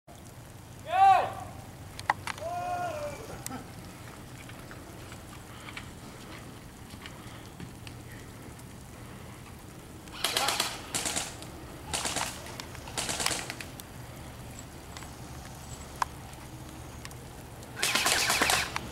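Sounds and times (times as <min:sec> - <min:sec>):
airsoft gun rapid shots: 0:10.2 - 0:13.6, 0:17.8 - 0:18.8.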